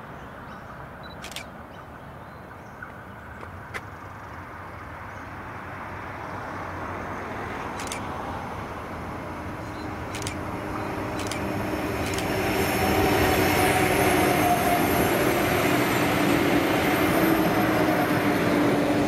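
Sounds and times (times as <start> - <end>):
diesel railcar engine drone: 0.0 - 19.0
sharp clicks: 1.1 - 1.5, 7.7 - 8.1, 10.1 - 10.4, 11.2 - 12.4.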